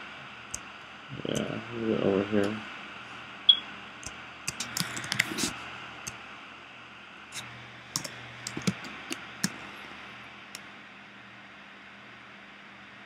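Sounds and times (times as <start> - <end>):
low steady hum: 0.0 - 13.0
keyboard and mouse clicking: 4.0 - 5.5, 8.0 - 9.6.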